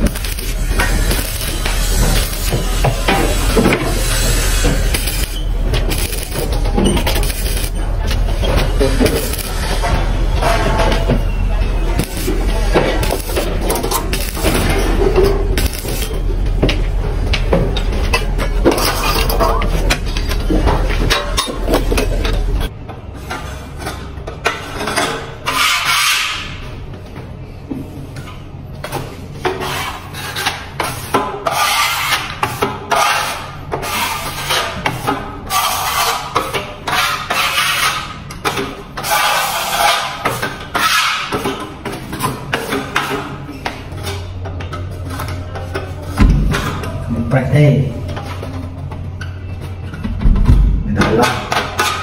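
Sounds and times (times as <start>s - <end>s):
steel trowel scraping plaster: 24.8s - 26.6s, 29.5s - 38.2s, 39.0s - 41.6s.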